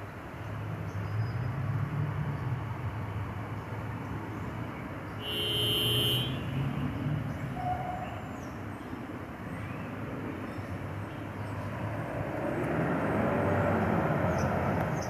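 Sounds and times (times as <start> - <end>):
train horn blast: 5.2 - 6.6.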